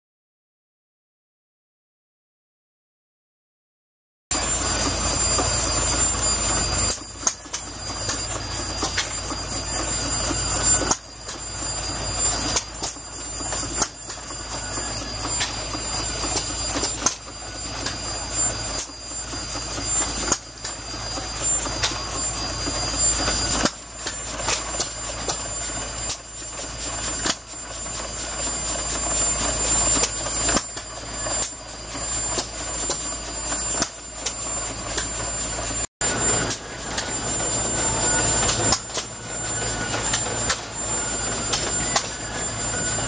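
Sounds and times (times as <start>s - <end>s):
steam engine clicking: 12.4s - 26.2s.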